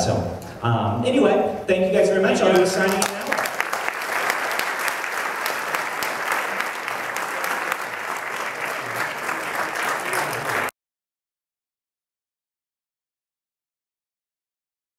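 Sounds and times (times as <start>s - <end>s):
audience applauding: 2.4s - 10.7s.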